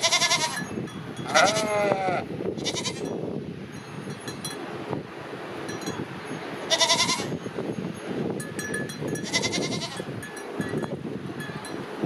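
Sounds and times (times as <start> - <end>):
goat bleating: 0.0 - 0.6, 1.2 - 3.1, 6.7 - 7.3, 9.2 - 10.1.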